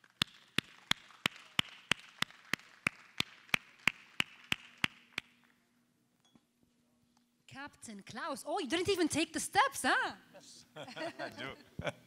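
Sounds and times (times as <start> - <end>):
audience applause: 0.0 - 4.9
person clapping close by: 0.0 - 5.4.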